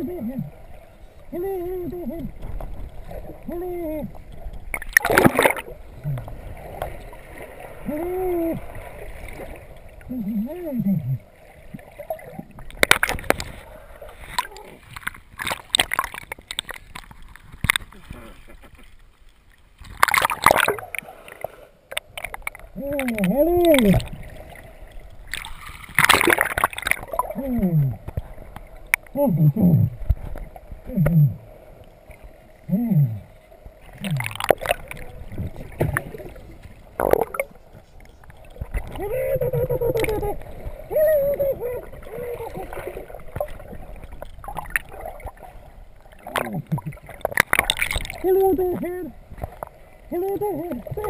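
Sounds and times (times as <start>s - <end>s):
water splashing and gurgling: 0.0s - 51.0s
underwater knocks and clicks: 2.3s - 3.2s, 12.2s - 13.6s, 14.3s - 18.9s, 21.9s - 24.2s, 25.3s - 29.2s, 29.8s - 31.4s, 33.9s - 40.8s, 46.2s - 48.2s.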